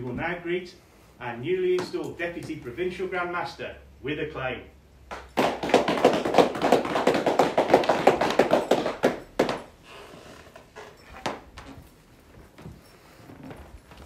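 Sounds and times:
people clapping: 0:05.1 - 0:09.7.

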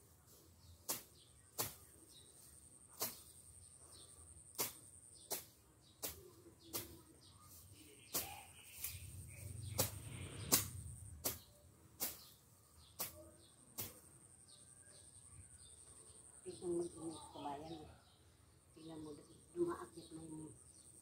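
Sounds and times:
rustling of cut growth: 0:00.0 - 0:14.6
hand tool swishing through weeds: 0:00.4 - 0:03.3, 0:04.5 - 0:07.0, 0:08.0 - 0:12.4.

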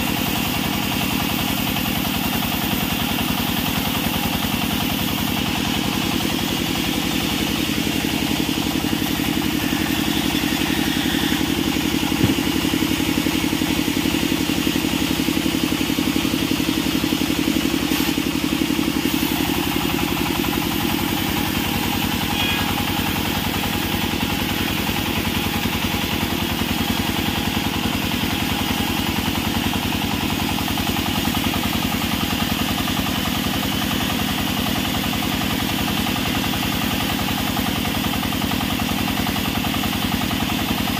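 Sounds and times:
band saw cutting timber: 0:00.0 - 0:15.4, 0:16.0 - 0:32.6
short knock: 0:12.2 - 0:12.6.

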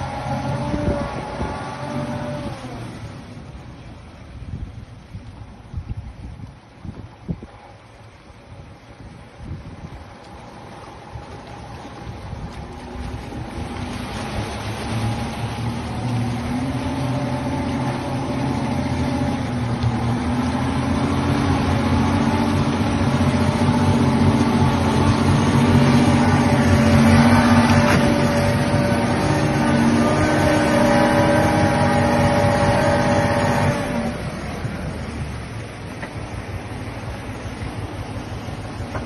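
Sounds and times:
truck diesel engine labouring: 0:00.0 - 0:04.2, 0:12.8 - 0:39.0.

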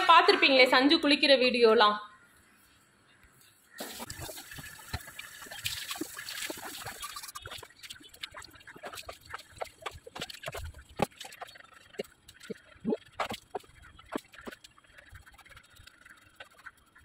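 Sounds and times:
water running and splashing: 0:03.8 - 0:17.0.

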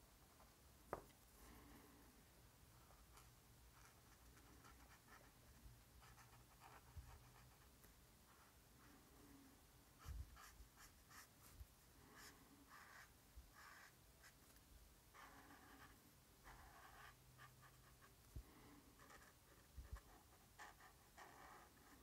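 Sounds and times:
pen scratching on paper: 0:02.8 - 0:07.7, 0:10.0 - 0:11.5, 0:12.1 - 0:14.4, 0:15.1 - 0:18.2, 0:18.9 - 0:22.0.

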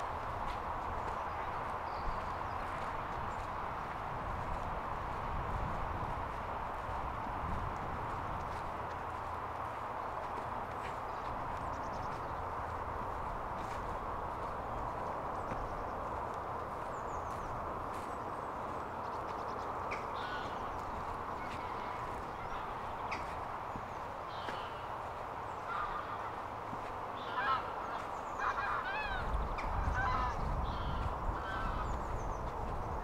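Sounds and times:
geese honking: 0:08.5 - 0:32.5.

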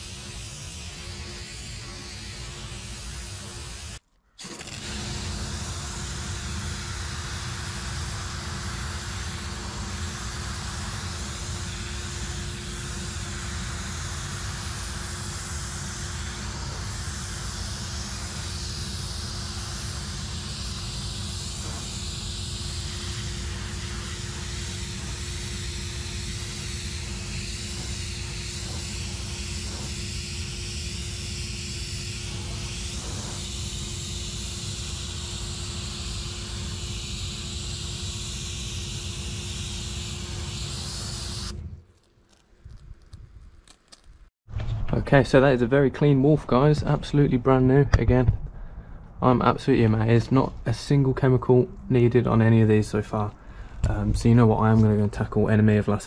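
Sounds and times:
steam blasting hiss: 0:00.0 - 0:41.6
machine drone and hum: 0:00.0 - 0:56.0.

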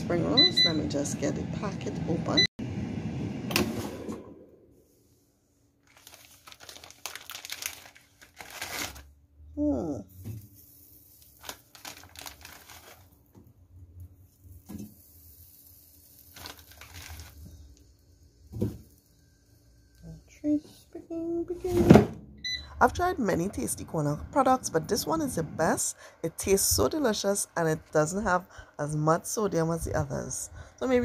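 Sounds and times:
plastic packaging crinkling and tearing: 0:05.8 - 0:09.1, 0:10.8 - 0:13.3, 0:15.9 - 0:18.0.

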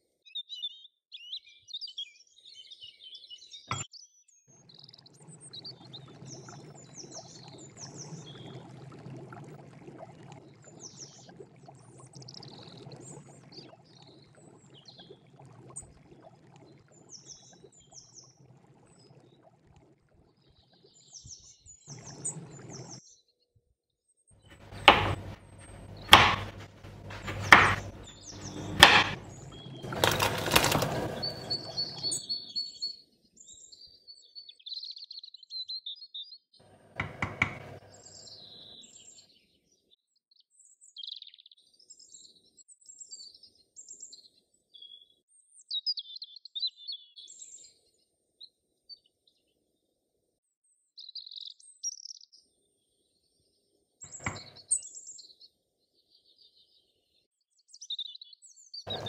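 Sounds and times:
birds chirping: 0:24.5 - 0:32.8, 0:36.9 - 0:39.2, 0:54.1 - 0:54.9
heavy knocks on wooden board: 0:24.6 - 0:28.1, 0:28.7 - 0:29.2, 0:37.0 - 0:37.8.

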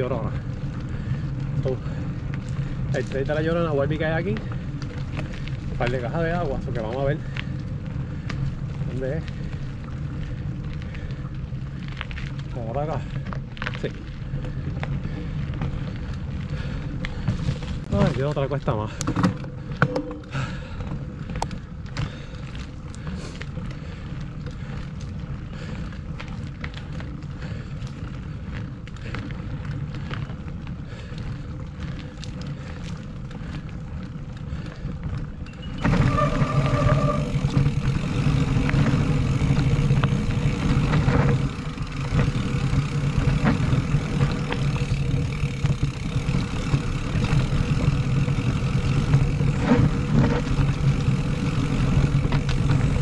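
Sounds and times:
bike rattling: 0:00.0 - 0:53.0
bike tyres rolling: 0:00.0 - 0:53.0.

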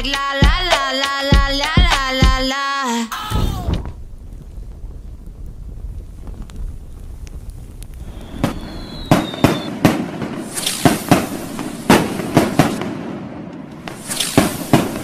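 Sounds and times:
fireworks bangs: 0:03.2 - 0:15.0
dense firework crackling: 0:03.3 - 0:15.0
high firework whistle: 0:08.0 - 0:12.9, 0:13.8 - 0:15.0.

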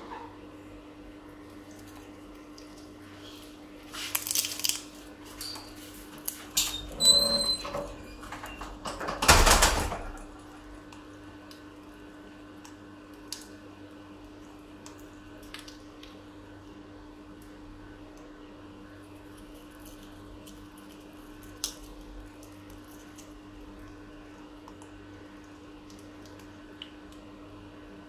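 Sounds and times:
parrot crunching a nut: 0:04.0 - 0:05.0, 0:19.1 - 0:23.9
high squeak: 0:06.7 - 0:08.2.

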